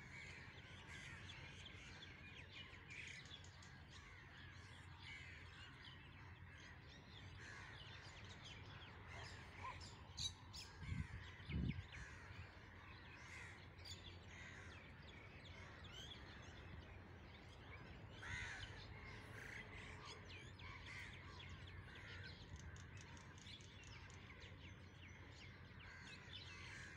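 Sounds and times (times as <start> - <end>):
crows cawing: 10.9 - 15.0, 18.2 - 23.0, 25.7 - 26.9.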